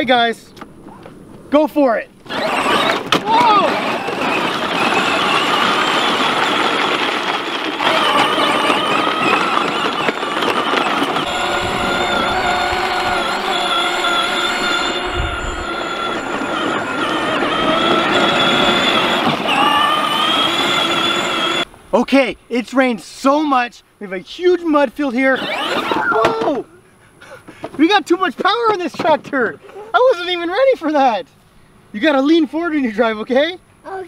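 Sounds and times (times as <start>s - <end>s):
electric toy tractors whining: 2.2s - 21.7s, 25.0s - 26.8s.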